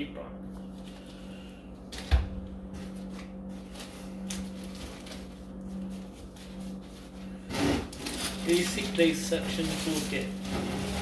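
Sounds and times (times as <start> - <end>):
steady low hum: 0.0 - 11.0
plastic and cardboard rustling: 2.8 - 11.0.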